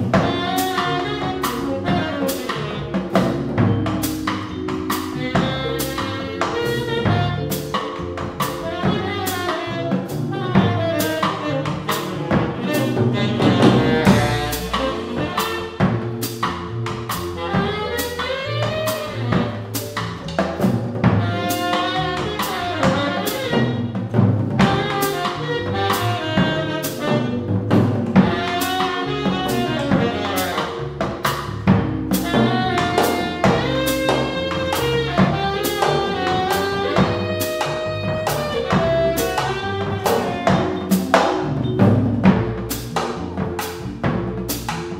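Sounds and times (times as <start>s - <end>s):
saxophone melody: 0.0s - 20.4s, 21.0s - 44.9s
drum kit with cymbals: 0.0s - 44.9s
keyboard: 0.0s - 44.9s
upright bass: 0.0s - 44.9s.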